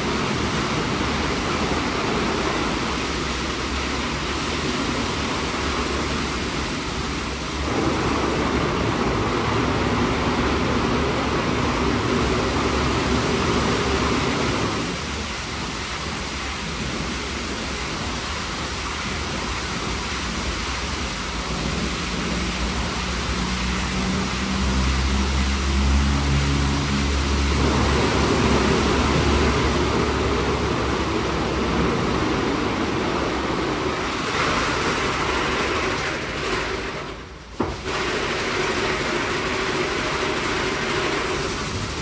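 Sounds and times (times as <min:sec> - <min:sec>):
water spraying onto car: 0:00.0 - 0:42.0
low motor hum: 0:22.2 - 0:33.7.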